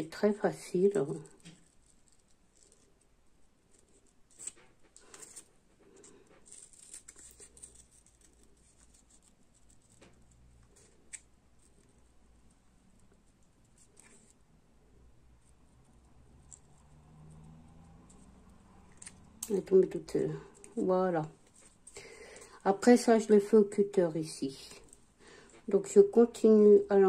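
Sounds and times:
scissors snipping paper: 6.4s - 11.8s.

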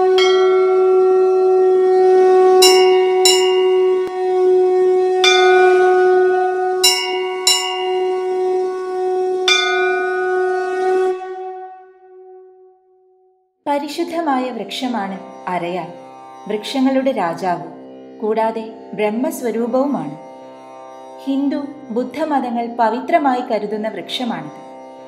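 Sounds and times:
brass bell strikes: 0.0s - 1.5s, 2.6s - 4.2s, 5.2s - 10.9s
conch shell blast: 0.0s - 12.4s.

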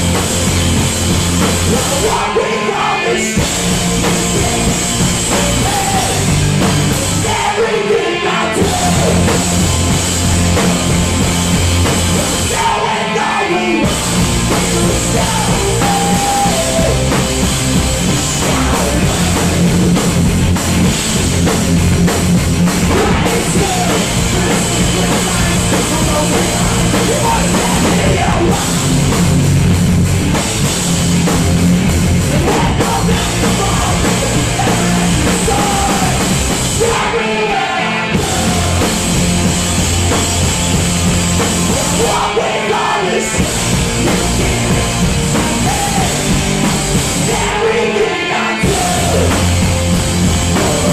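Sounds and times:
bass guitar: 0.0s - 50.9s
drum kit: 0.0s - 50.9s
electric guitars: 0.0s - 50.9s
person singing: 1.6s - 9.6s, 12.2s - 17.3s, 22.8s - 29.0s, 32.3s - 39.1s, 41.6s - 46.4s, 47.1s - 49.7s, 50.3s - 50.9s.

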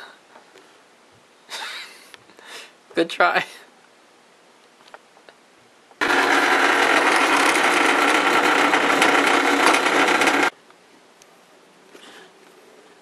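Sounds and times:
drill press cutting metal: 6.0s - 10.5s.

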